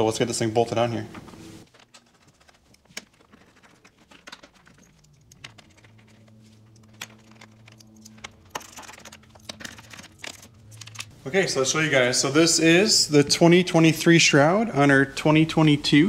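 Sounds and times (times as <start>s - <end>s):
plastic clicks and rattles: 1.7s - 11.1s.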